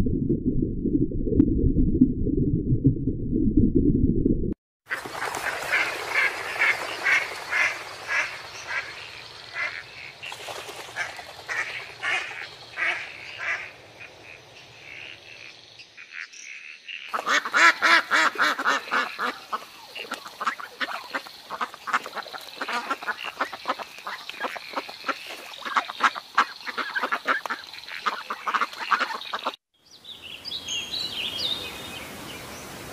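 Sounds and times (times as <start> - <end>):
ducks calling: 4.9 - 29.6.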